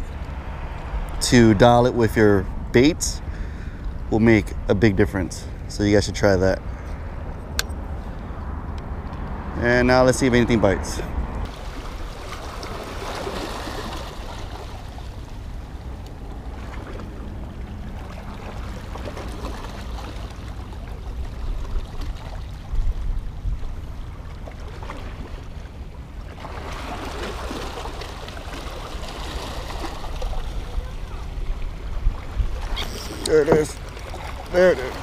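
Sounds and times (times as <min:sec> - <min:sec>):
low wind rumble on microphone: 0:00.0 - 0:26.3, 0:29.5 - 0:34.6
waves splashing against rocks: 0:11.5 - 0:22.7, 0:24.4 - 0:35.0.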